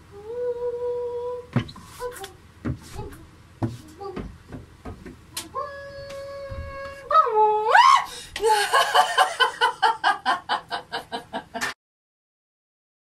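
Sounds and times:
woman's voice swooping high: 0:01.9 - 0:04.2
woman laughing: 0:07.7 - 0:11.8.

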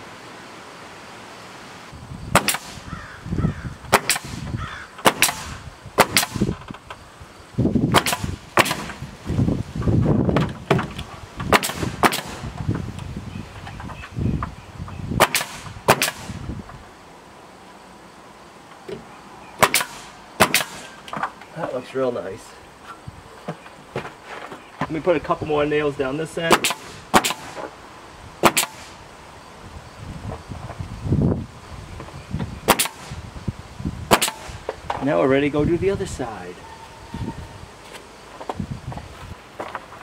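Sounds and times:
nail gun shots: 0:02.3 - 0:02.9, 0:03.9 - 0:06.7, 0:07.9 - 0:09.0, 0:10.4 - 0:12.5, 0:15.2 - 0:16.5, 0:19.6 - 0:21.0, 0:26.5 - 0:27.7, 0:28.4 - 0:29.0, 0:32.7 - 0:33.2, 0:34.1 - 0:34.6.

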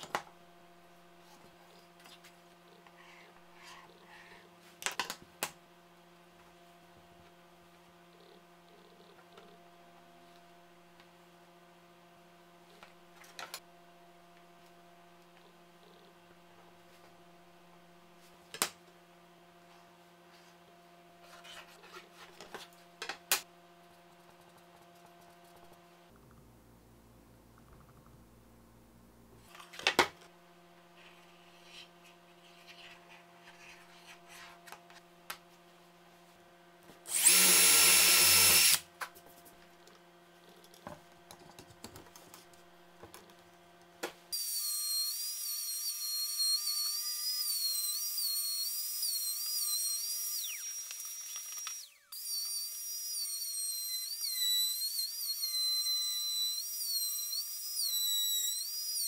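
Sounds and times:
trim router cutting plywood: 0:37.1 - 0:38.8, 0:44.4 - 0:59.0.

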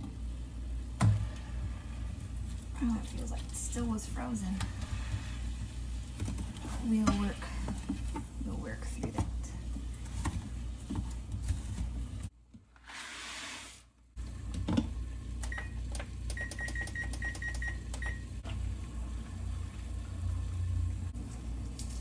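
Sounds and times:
appliance keypad beeps: 0:15.4 - 0:18.2.

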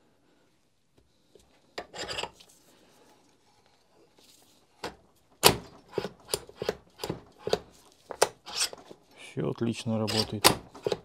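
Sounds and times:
metal bit scraping in chuck: 0:08.4 - 0:08.8, 0:10.1 - 0:11.0.

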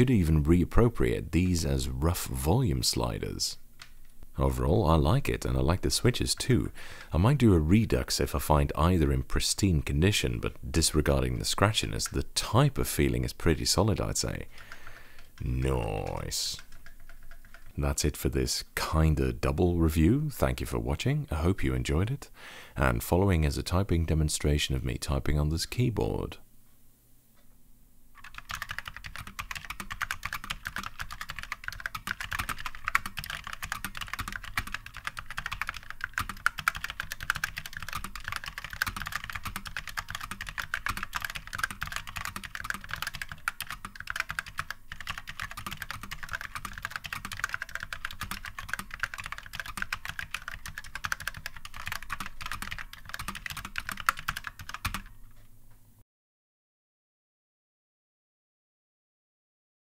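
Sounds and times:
fast typing on keyboard: 0:14.6 - 0:17.8, 0:28.2 - 0:55.1.

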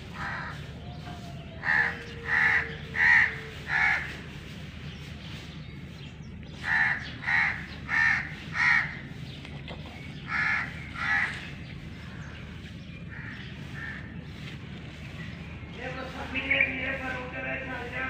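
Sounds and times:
crow cawing: 0:00.2 - 0:00.6, 0:01.6 - 0:04.2, 0:06.6 - 0:09.0, 0:10.3 - 0:11.4, 0:13.1 - 0:14.4.

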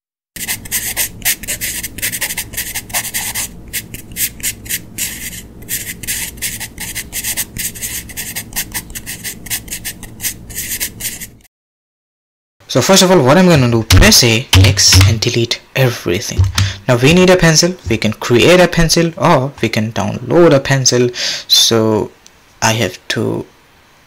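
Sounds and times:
pencil scratching on paper: 0:00.4 - 0:11.5.

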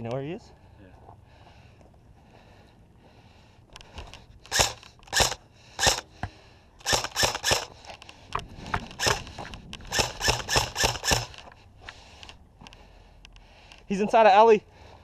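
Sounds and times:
airsoft rifle shots: 0:04.5 - 0:06.0, 0:06.8 - 0:07.7, 0:09.0 - 0:11.4.

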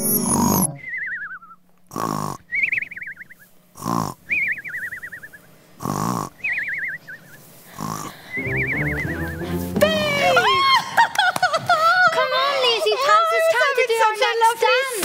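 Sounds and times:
brief chime: 0:00.0 - 0:00.8
cartoon snore with falling whistle: 0:00.0 - 0:02.8, 0:07.8 - 0:09.4.

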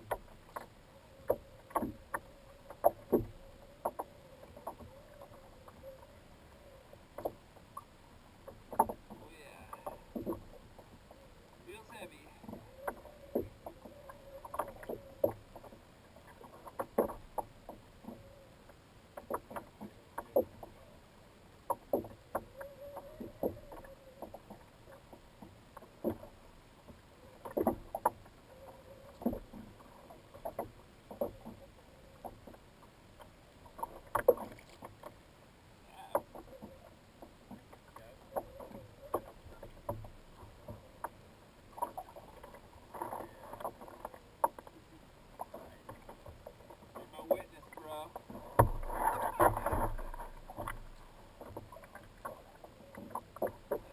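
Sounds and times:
water knocking against kayak hull: 0:00.0 - 0:05.4, 0:07.1 - 0:11.0, 0:11.9 - 0:18.3, 0:19.2 - 0:20.8, 0:21.6 - 0:28.3, 0:45.4 - 0:53.9.

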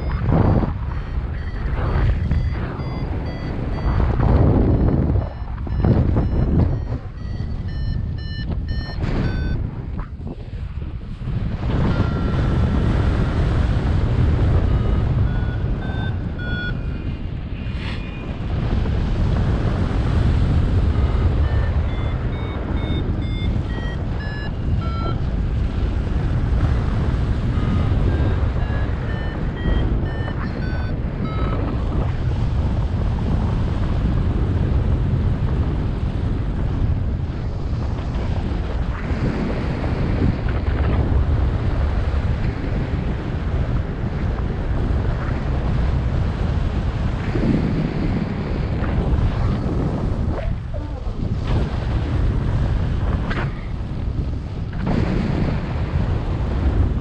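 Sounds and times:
variometer short beeps: 0:00.0 - 0:10.1, 0:11.7 - 0:18.5, 0:20.8 - 0:25.3, 0:26.7 - 0:32.3
wind buffeting microphone: 0:00.0 - 0:57.0.

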